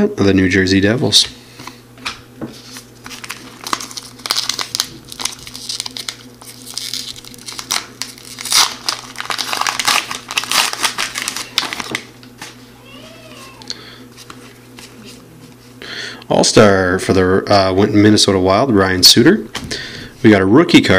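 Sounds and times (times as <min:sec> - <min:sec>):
foil wrapper crinkling: 0:02.6 - 0:12.2.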